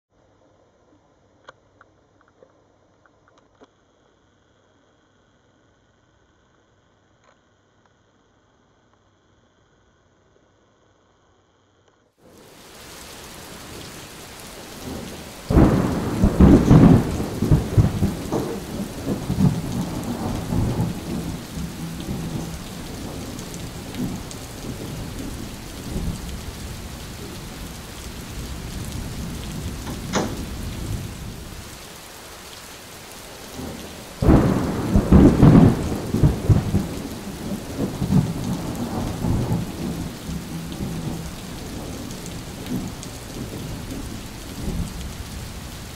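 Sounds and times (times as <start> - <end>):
steady rain: 12.2 - 45.9
thunder rumbling: 12.4 - 45.9.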